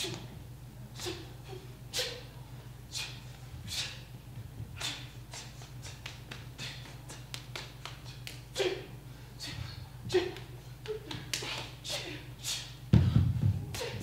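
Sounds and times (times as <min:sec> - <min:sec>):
low steady hum: 0:00.0 - 0:14.0
sharp slaps and clicks: 0:05.8 - 0:08.4.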